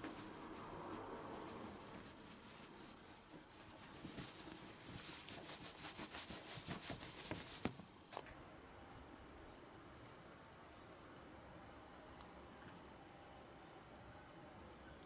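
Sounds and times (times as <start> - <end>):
towel rubbing dog fur: 0.0 - 7.8.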